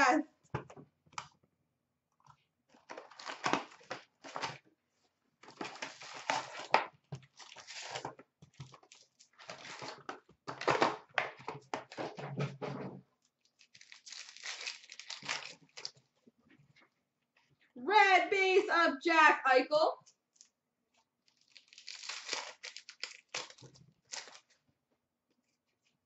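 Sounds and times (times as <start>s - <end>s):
card packs tearing and rustling: 2.8s - 4.6s, 5.4s - 12.1s, 13.5s - 16.1s, 21.2s - 24.6s.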